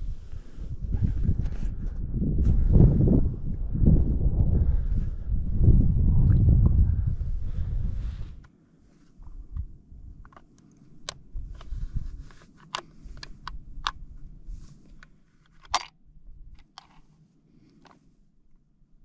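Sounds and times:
rifle action clicking: 15.0s - 16.0s.

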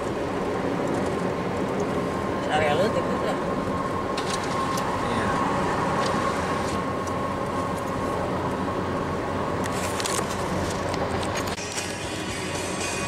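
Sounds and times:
tyre rumble inside car: 3.7s - 8.3s, 9.6s - 11.7s.

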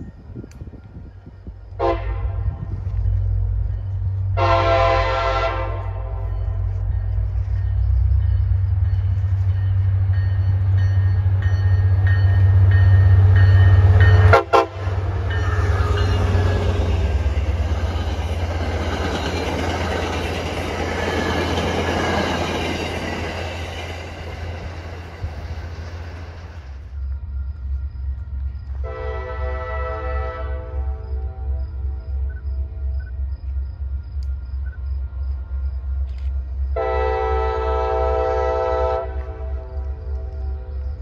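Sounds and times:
diesel train rumble: 0.0s - 41.0s
train horn: 1.7s - 3.0s, 4.2s - 7.2s, 12.8s - 17.6s, 28.8s - 33.2s, 36.7s - 41.0s
train wheels clattering on rails: 5.8s - 28.8s.

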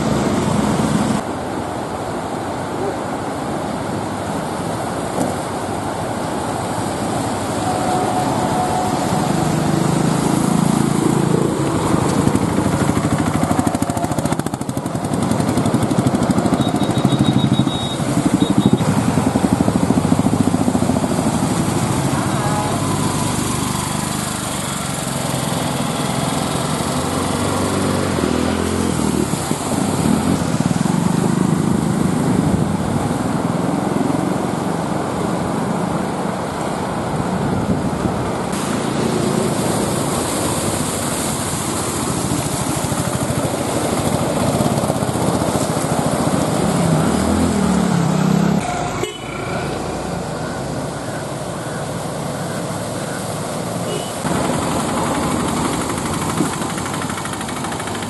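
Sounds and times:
water splashing around wheels: 0.0s - 58.0s
small vehicle engines running: 4.4s - 34.7s, 36.2s - 58.0s.

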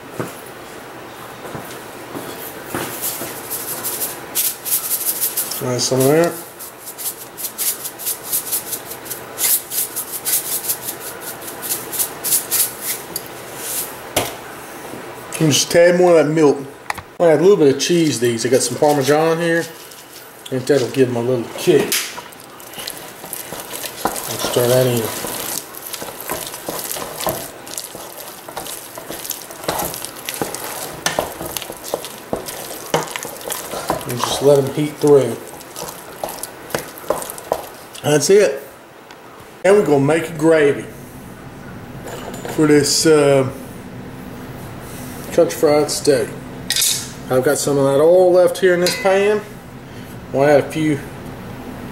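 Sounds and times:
wooden spoon stirring mashed potatoes: 2.7s - 13.9s, 17.8s - 38.3s.

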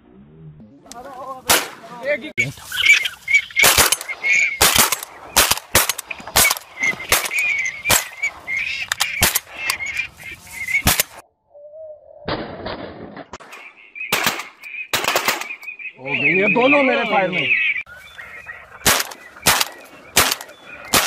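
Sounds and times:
rough outdoor noise: 0.0s - 11.3s, 12.2s - 21.0s
waterfowl calling: 1.0s - 11.2s, 13.4s - 21.0s
shotgun shots: 1.5s - 1.9s, 3.6s - 8.3s, 9.2s - 9.6s, 10.8s - 11.2s, 12.3s - 15.6s, 18.8s - 21.0s.

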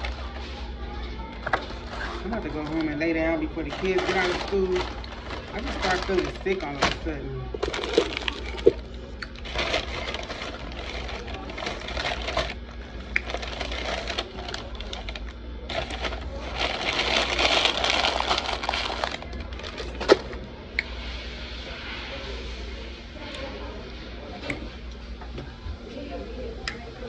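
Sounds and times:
paper bag and wrappers crinkling: 0.0s - 20.4s.

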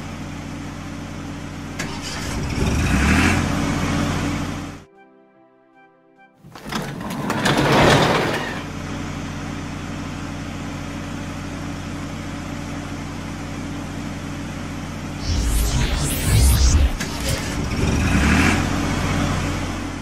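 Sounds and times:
cartoon truck engine: 1.7s - 4.8s
deep rumble: 15.2s - 20.0s.

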